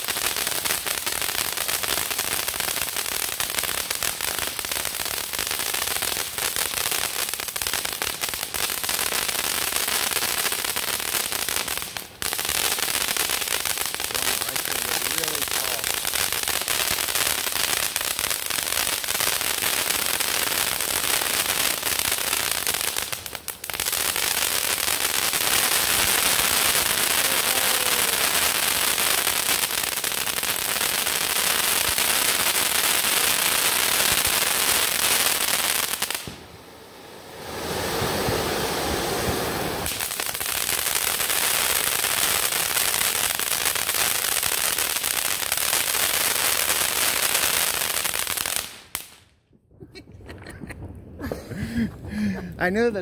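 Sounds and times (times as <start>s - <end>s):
firework fountain hissing and crackling: 0.0s - 53.0s.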